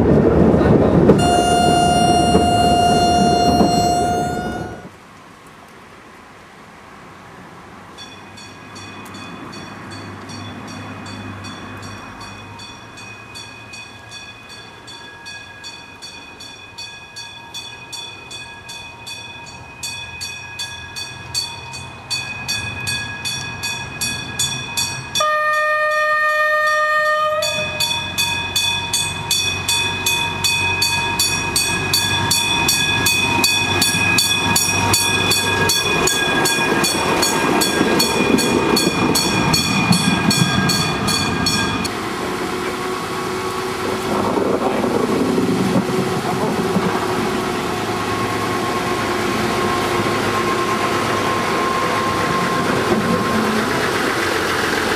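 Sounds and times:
diesel railcar passing with clatter: 0.0 - 54.9
train horn blast: 1.0 - 4.9, 25.2 - 27.9.

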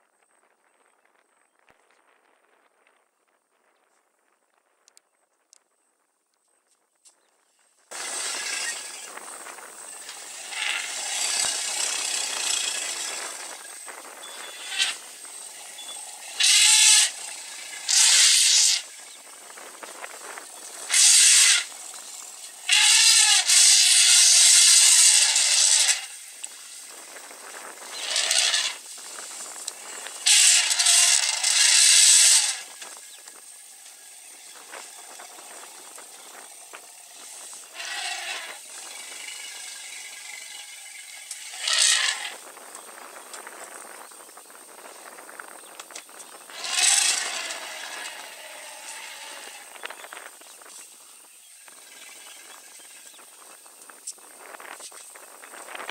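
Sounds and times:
elephants trumpeting: 9.9 - 19.0, 20.4 - 26.9, 27.7 - 32.9, 37.0 - 42.4, 46.4 - 50.1.

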